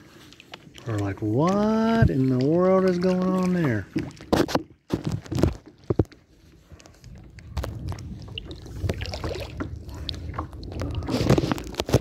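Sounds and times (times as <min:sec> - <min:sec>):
wind rumble on microphone: 0:06.7 - 0:12.0
waterproof bag rubbing: 0:11.0 - 0:12.0.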